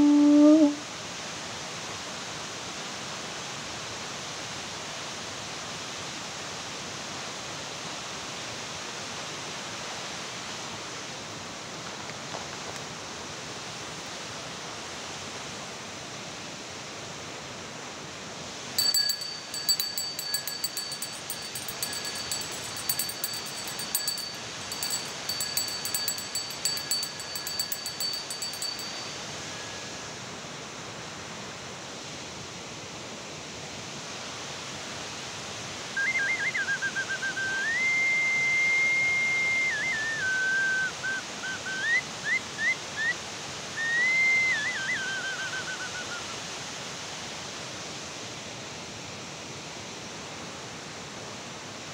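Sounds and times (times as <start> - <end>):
thin high tone: 18.8 - 29.9.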